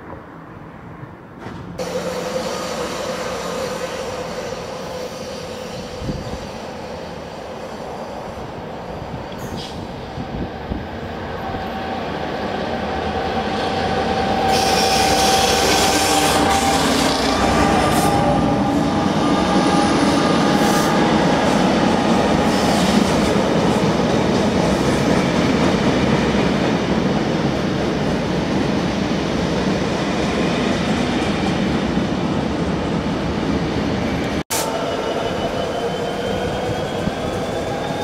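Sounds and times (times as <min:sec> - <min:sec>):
diesel locomotive passing: 0:00.0 - 0:38.0
wheels squealing on rails: 0:01.8 - 0:08.4, 0:09.3 - 0:26.3, 0:34.1 - 0:38.0.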